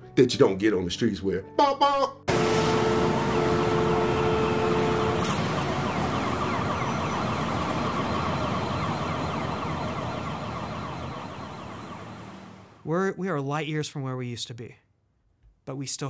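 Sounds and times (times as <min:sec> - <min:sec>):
street noise: 0:02.3 - 0:12.8
emergency vehicle siren: 0:02.3 - 0:12.9.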